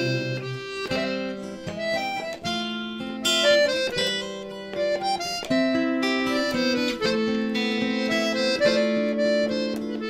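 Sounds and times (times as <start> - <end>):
instrumental waltz music: 0.0 - 10.0.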